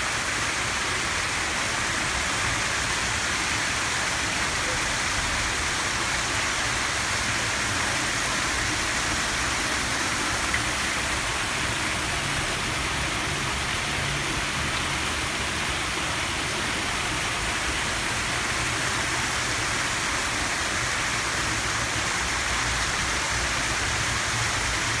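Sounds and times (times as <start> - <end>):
fountain water splashing: 0.0 - 25.0.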